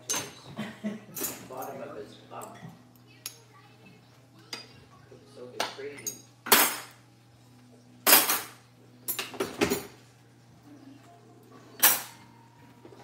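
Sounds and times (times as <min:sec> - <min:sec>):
metal cutlery clattering into drawer: 0:08.1 - 0:09.9.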